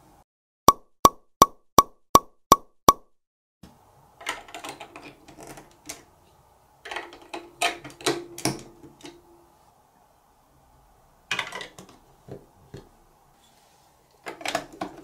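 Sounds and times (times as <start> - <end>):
plastic blocks clicking and clattering: 4.2 - 6.1, 6.8 - 9.2, 11.3 - 12.9, 14.2 - 15.0.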